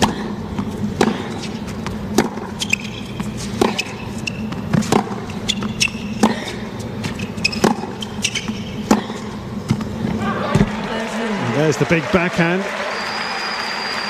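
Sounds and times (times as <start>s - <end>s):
tennis racquets hitting ball: 0.0s - 10.8s.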